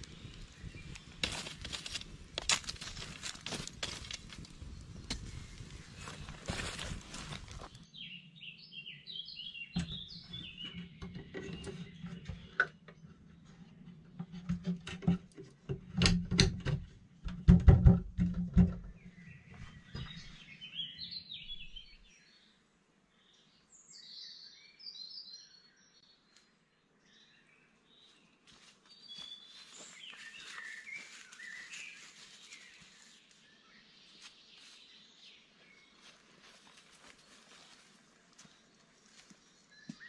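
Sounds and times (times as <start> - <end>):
small songbirds chirping: 0.0 - 14.5, 18.2 - 40.0
knocks and clatters: 13.9 - 19.0.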